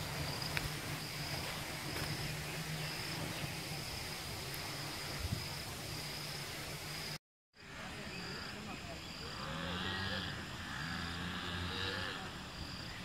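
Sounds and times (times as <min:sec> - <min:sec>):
outdoor hiss: 0:00.0 - 0:07.2.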